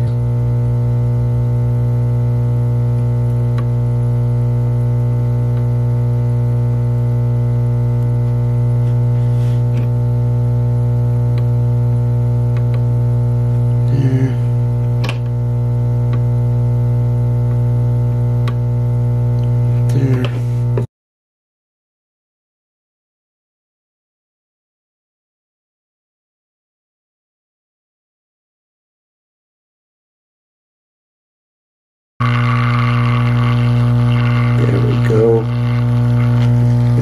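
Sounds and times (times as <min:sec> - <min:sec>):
loud low hum: 0:00.0 - 0:20.9, 0:32.2 - 0:37.0.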